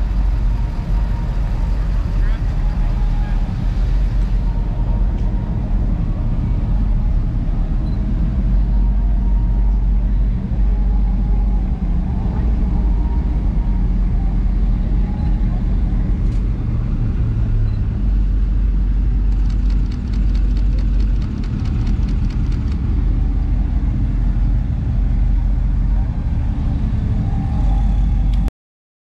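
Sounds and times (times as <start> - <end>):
engine rumbling: 0.0 - 28.5.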